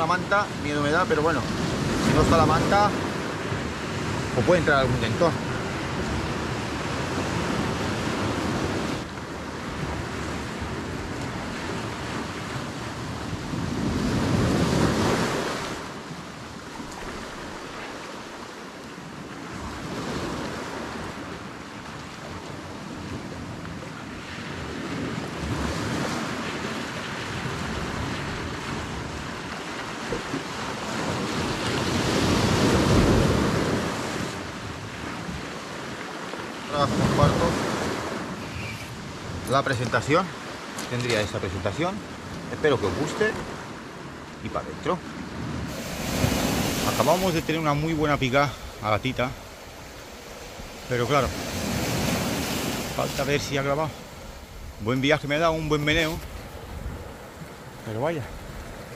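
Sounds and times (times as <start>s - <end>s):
sea waves washing: 0.0s - 58.9s
wind noise on microphone: 1.4s - 16.1s, 22.3s - 36.0s, 45.2s - 58.9s.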